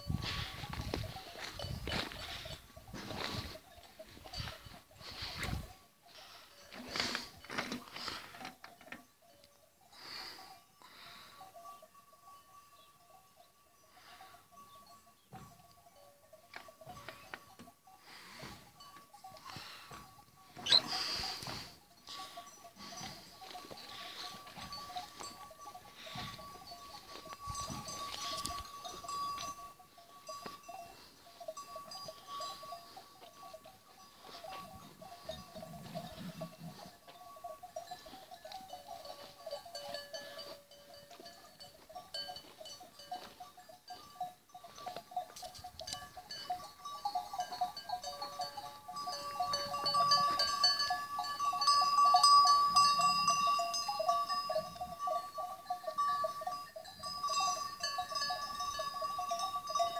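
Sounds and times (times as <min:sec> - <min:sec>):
sheep bells clanking: 0:00.0 - 0:59.9.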